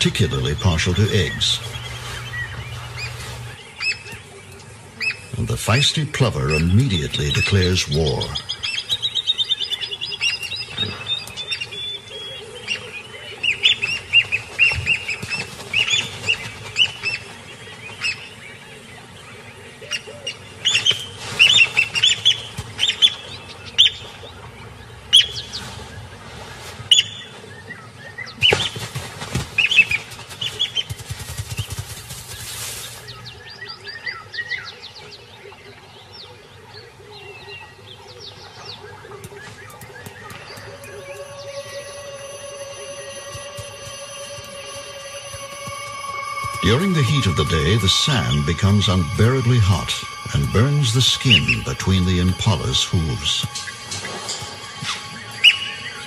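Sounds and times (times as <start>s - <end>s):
lapwing alarm calls: 36.2s - 56.0s.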